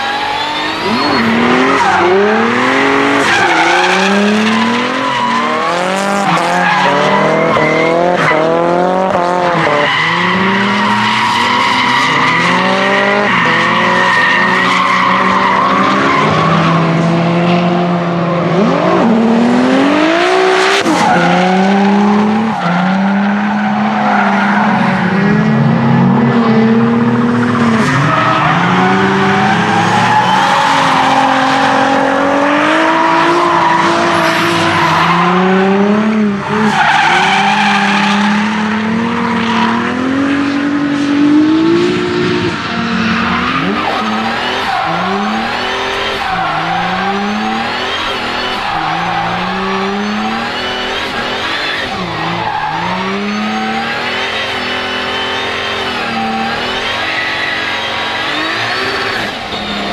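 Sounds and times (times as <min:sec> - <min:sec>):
car engine revving: 0:00.0 - 0:59.9
tyres squealing: 0:42.6 - 0:59.9.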